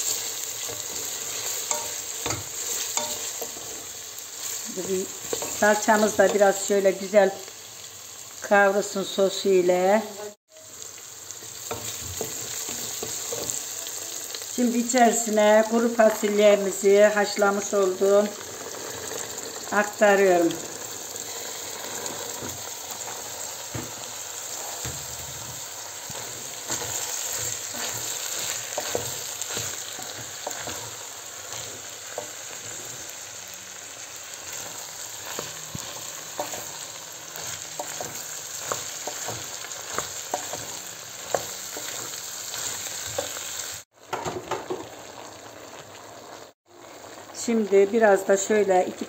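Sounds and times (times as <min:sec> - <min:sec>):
food sizzling in oil: 0:00.0 - 0:49.0
wooden spoon scraping a pot: 0:21.2 - 0:33.0.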